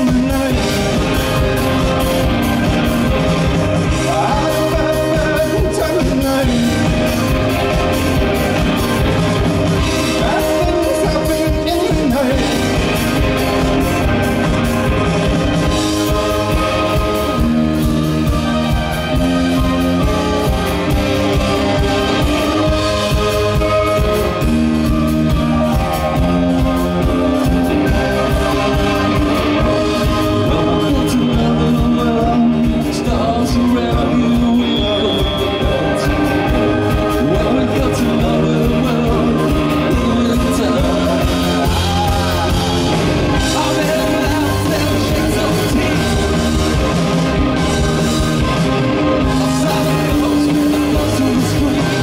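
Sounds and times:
man singing: 0:00.0 - 0:14.5, 0:15.5 - 0:52.0
drum kit: 0:00.0 - 0:52.0
electric guitar: 0:00.0 - 0:52.0.

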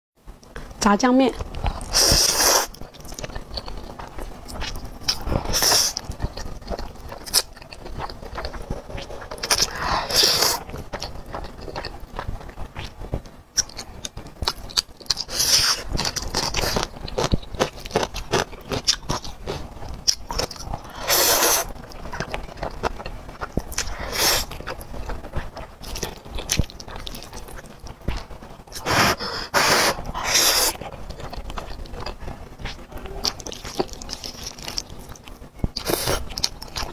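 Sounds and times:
wet chewing: 0:01.3 - 0:36.9
slurping noodles: 0:01.8 - 0:02.8, 0:08.7 - 0:10.7, 0:20.9 - 0:21.7, 0:23.8 - 0:24.5, 0:28.8 - 0:30.8.

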